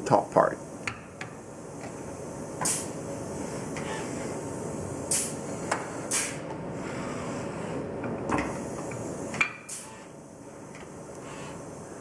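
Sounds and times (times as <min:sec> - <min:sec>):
short hissing bursts: 0:02.6 - 0:03.0, 0:05.1 - 0:06.4.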